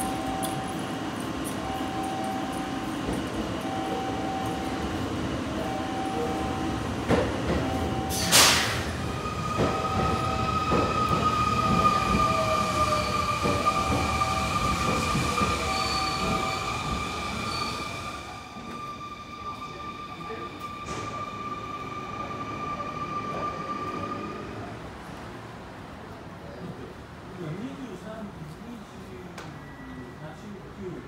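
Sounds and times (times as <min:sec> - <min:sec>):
train whine and squeal: 0:00.0 - 0:25.1, 0:29.4 - 0:30.6
train knocks: 0:02.9 - 0:03.5, 0:07.0 - 0:08.9, 0:09.5 - 0:16.5
short loud hiss: 0:08.2 - 0:08.9.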